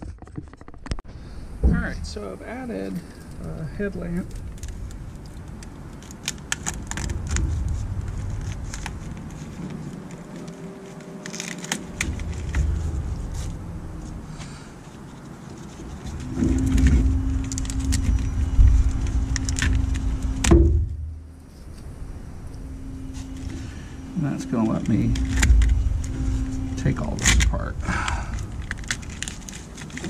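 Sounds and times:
wiring clicks and rattles: 0.0 - 1.0, 2.8 - 14.2, 15.4 - 30.0
steady hum: 1.1 - 30.0
low rumble: 15.9 - 30.0.

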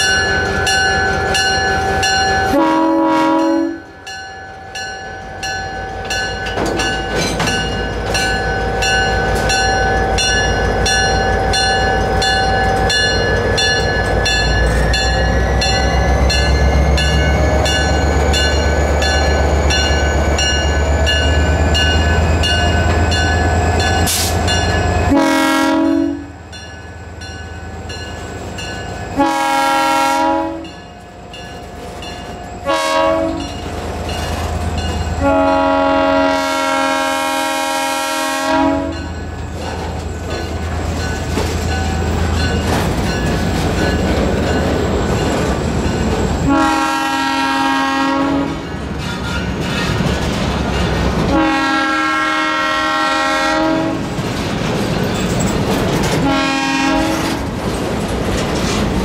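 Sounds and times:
diesel locomotive engine rumbling: 0.0 - 59.0
freight cars rolling on rails: 0.0 - 59.0
locomotive horn blasts: 2.5 - 4.0, 25.1 - 26.4, 29.2 - 30.8, 32.6 - 33.6, 35.2 - 39.1, 46.4 - 48.7, 51.3 - 54.1, 56.2 - 57.4.

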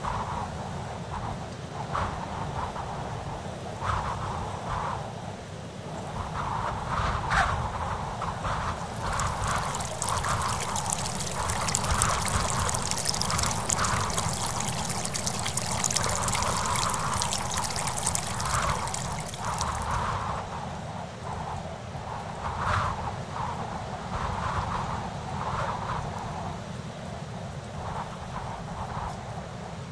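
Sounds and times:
wind rumbling on microphone: 8.6 - 20.2
water pouring into stone trough: 8.8 - 20.1.

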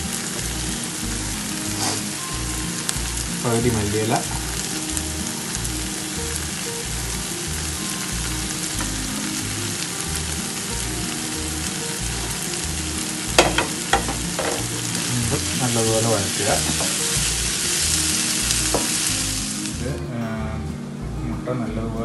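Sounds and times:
vegetables sizzling in oil: 0.0 - 20.0
spatula knocking against pan: 13.4 - 14.7.

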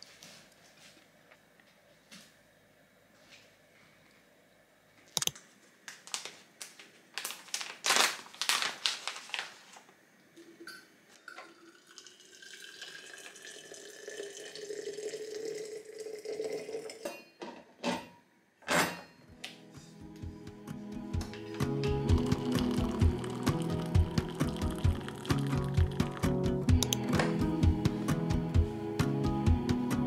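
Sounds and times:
water pouring from a kettle: 11.2 - 17.2, 22.1 - 26.4.

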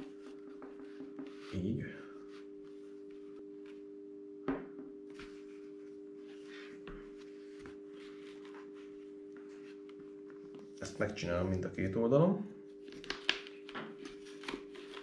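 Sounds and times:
steady hum: 0.0 - 15.0
strap rustling: 5.1 - 10.7.

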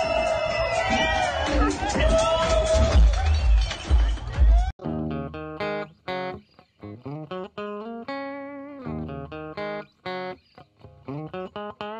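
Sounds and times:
guitar plucking a melody: 4.8 - 11.9.

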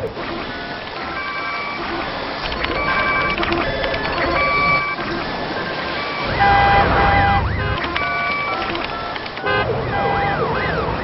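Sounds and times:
electronic beeps and alarm tones: 0.3 - 11.0
siren-like sweeping tone: 4.2 - 8.8.

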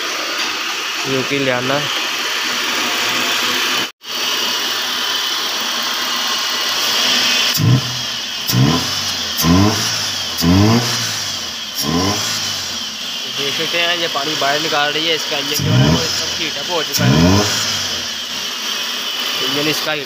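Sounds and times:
car engine idling and revving: 6.3 - 20.0.

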